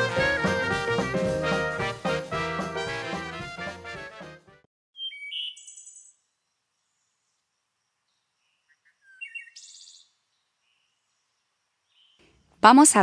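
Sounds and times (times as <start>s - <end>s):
birds chirping: 5.0s - 6.2s, 8.1s - 12.4s.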